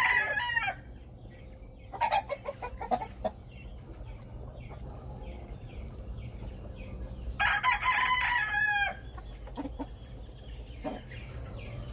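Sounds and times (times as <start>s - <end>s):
rooster crowing: 0.0s - 0.8s, 7.4s - 9.0s.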